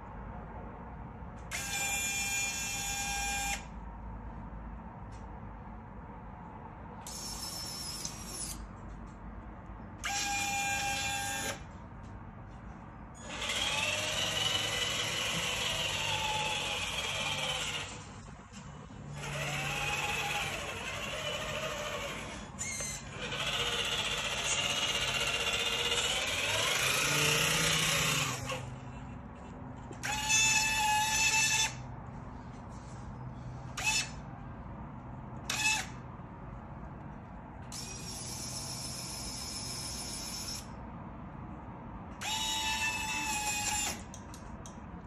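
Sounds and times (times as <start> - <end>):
toy truck motor and gears whining: 1.4 - 3.8, 7.0 - 9.1, 10.0 - 11.8, 13.1 - 32.0, 32.7 - 34.4, 35.4 - 36.0, 37.6 - 40.8, 42.1 - 44.8
small electric motor whining: 1.5 - 3.7, 7.0 - 8.7, 10.0 - 11.7, 13.2 - 29.0, 29.9 - 31.8, 33.7 - 34.2, 35.4 - 36.0, 37.7 - 40.8, 42.2 - 44.2.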